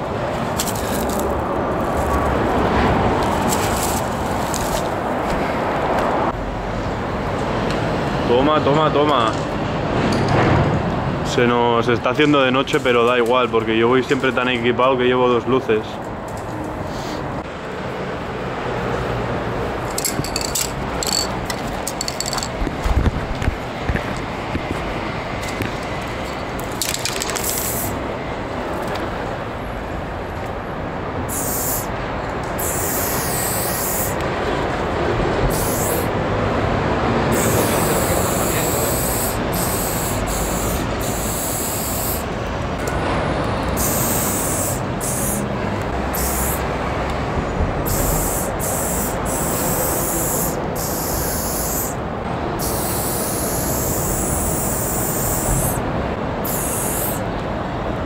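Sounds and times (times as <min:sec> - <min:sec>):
spray paint can hissing: 0:00.5 - 0:02.4, 0:19.9 - 0:21.3, 0:21.9 - 0:22.6, 0:26.8 - 0:28.0, 0:31.3 - 0:31.9, 0:32.6 - 0:34.2, 0:35.5 - 0:36.1, 0:37.3 - 0:42.3, 0:43.8 - 0:45.5, 0:46.1 - 0:46.7, 0:47.8 - 0:52.0, 0:52.6 - 0:55.8, 0:56.4 - 0:57.2.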